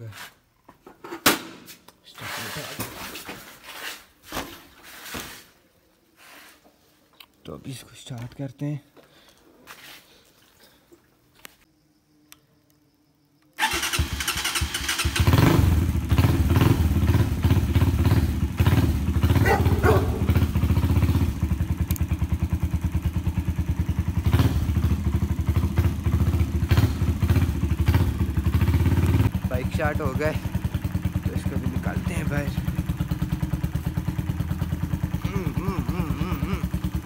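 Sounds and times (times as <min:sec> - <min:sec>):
motorcycle engine starting and running: 0:13.6 - 0:37.0.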